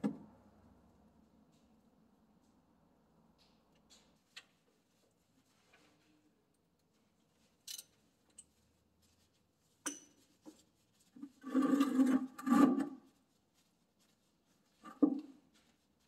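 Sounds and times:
loud squeaky scrapes: 11.2 - 13.0.

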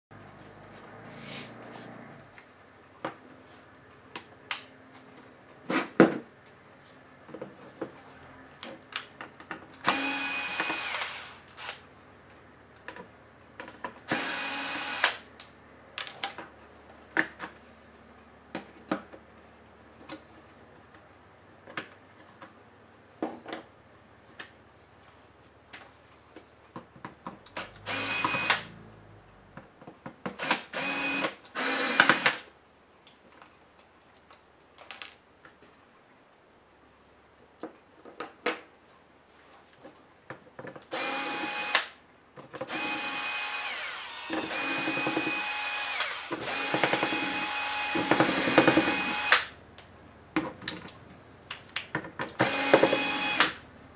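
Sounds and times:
electric screwdriver whirring: 9.8 - 11.8, 14.1 - 15.2, 27.6 - 28.7, 30.4 - 32.4, 40.9 - 41.9, 42.7 - 49.5, 52.4 - 53.6.

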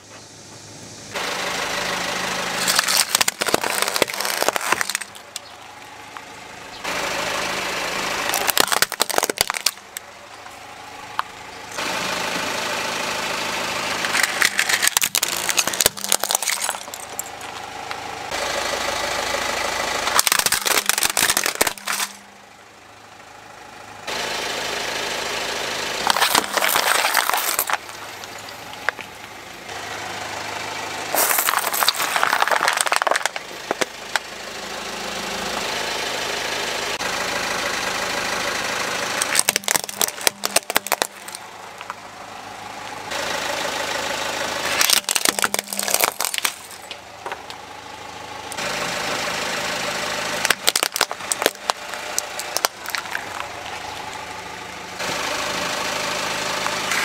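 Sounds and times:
car engine idling: 0.0 - 57.0
tyre crushing plastic toys: 2.6 - 5.5, 8.2 - 10.0, 14.0 - 17.6, 20.1 - 22.3, 26.0 - 29.2, 31.1 - 34.2, 39.2 - 42.0, 44.7 - 47.6, 50.4 - 54.2.

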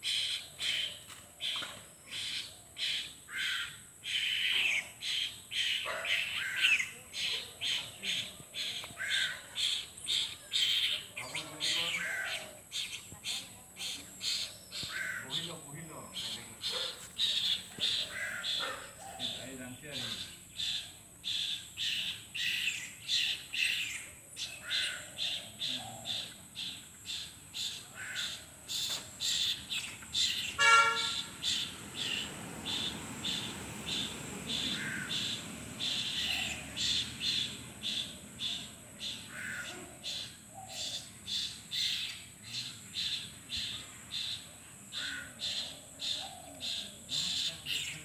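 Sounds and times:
fledgling begging calls: 0.0 - 48.0
brief honk: 30.6 - 31.3.

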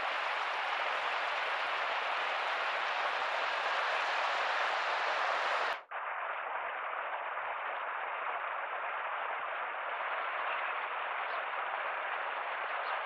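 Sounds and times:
bright steady hiss: 0.0 - 6.5.

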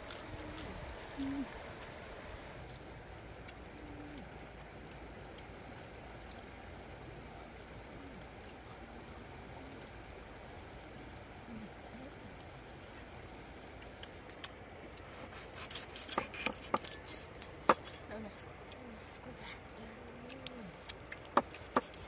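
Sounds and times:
flowing river water: 0.0 - 22.0
cleaver cutting crisp pork skin: 15.0 - 18.1, 21.1 - 22.0.

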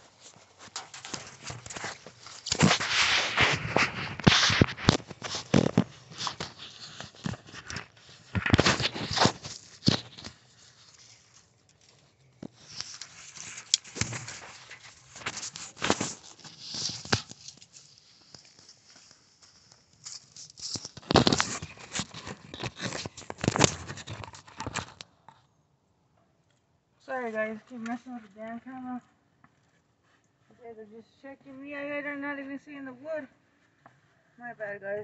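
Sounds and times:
fingers handling camera: 0.7 - 11.3, 12.4 - 18.7, 20.0 - 25.1.

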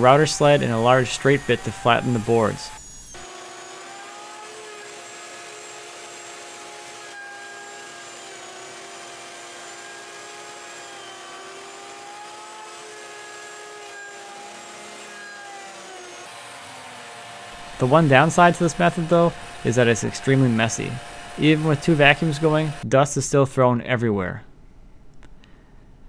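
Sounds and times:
router whine cutting wood: 0.0 - 22.8
shop vacuums running: 5.4 - 22.8.

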